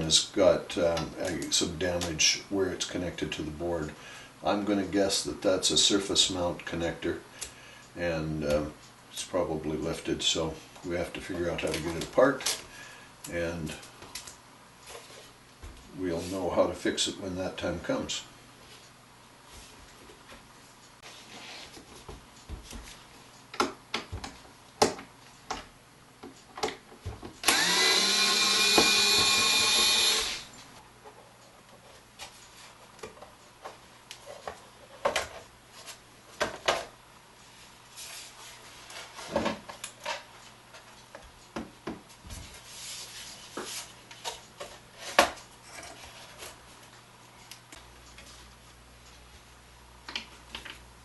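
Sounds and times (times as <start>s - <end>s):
electric screwdriver whine: 27.4s - 30.5s.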